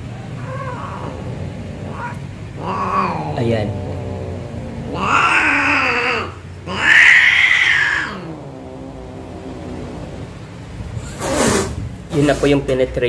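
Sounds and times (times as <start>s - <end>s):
cat yowling: 0.3s - 10.4s.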